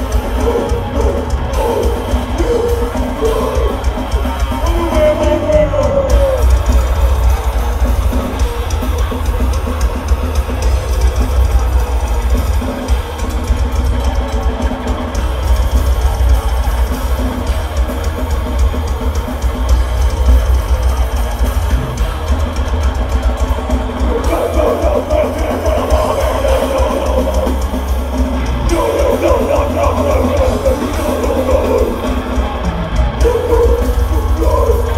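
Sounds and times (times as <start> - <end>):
death metal band playing live: 0.0 - 34.9
fast bass drum: 0.0 - 34.9.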